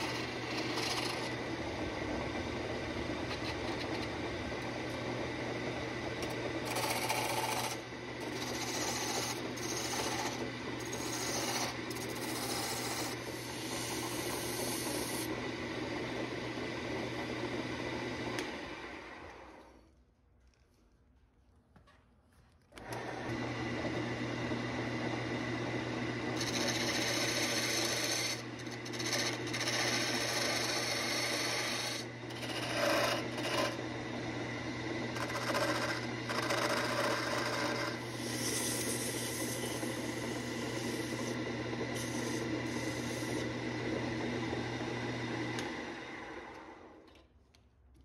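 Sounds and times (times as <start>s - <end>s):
turning tool shaving wood: 0.0s - 16.0s, 25.6s - 46.9s
lathe motor humming: 0.0s - 19.6s, 22.8s - 47.0s
lathe winding down: 0.0s - 19.7s, 22.8s - 47.1s.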